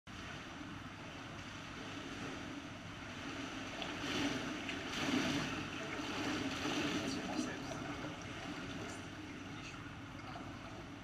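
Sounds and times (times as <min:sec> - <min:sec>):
pool water lapping and sloshing: 0:00.1 - 0:11.0.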